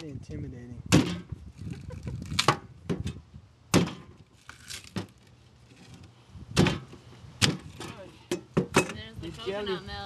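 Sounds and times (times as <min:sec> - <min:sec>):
machete chopping coconut: 0:00.9 - 0:01.3, 0:02.3 - 0:03.1, 0:03.7 - 0:05.1, 0:06.6 - 0:08.9.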